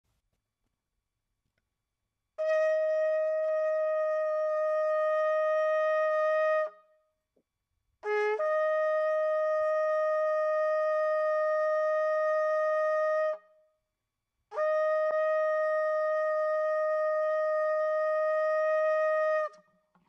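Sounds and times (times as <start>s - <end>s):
shofar blasts: 2.4s - 6.9s, 8.0s - 13.5s, 14.5s - 19.7s.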